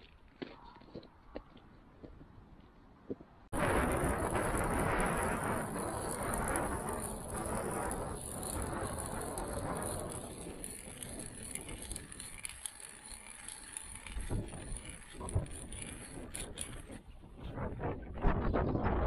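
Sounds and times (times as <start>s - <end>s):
wind buffeting microphone: 0.9s - 19.0s
ice auger grinding through ice: 3.6s - 17.7s.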